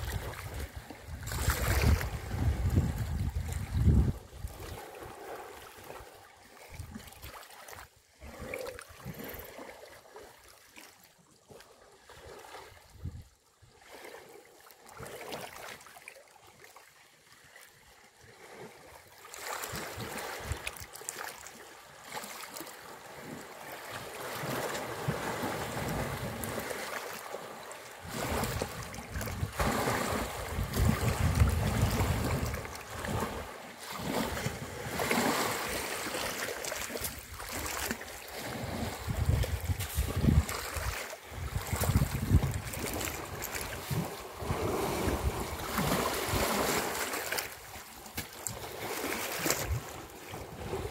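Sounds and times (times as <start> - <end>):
wind noise on microphone: 0.0 - 5.3, 12.7 - 13.3, 28.1 - 35.9, 37.0 - 47.0, 48.5 - 50.9
water sloshing and splashing: 0.0 - 50.9.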